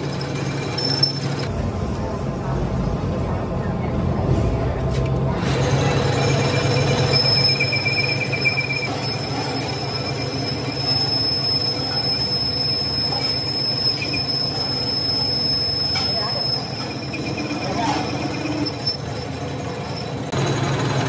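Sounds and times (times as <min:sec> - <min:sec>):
cutting tool squeal: 0:00.0 - 0:01.5, 0:05.3 - 0:20.3
metal lathe running: 0:00.0 - 0:02.4, 0:05.2 - 0:21.0.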